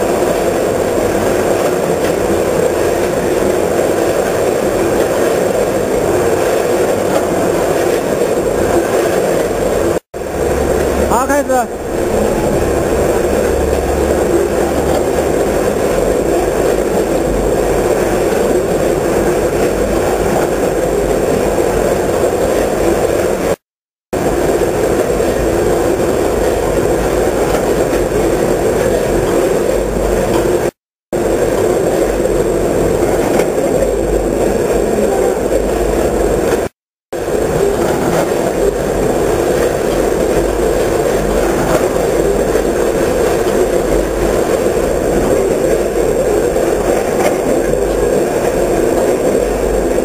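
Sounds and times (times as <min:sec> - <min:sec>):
food weigher mechanical din: 0:01.2 - 0:23.2.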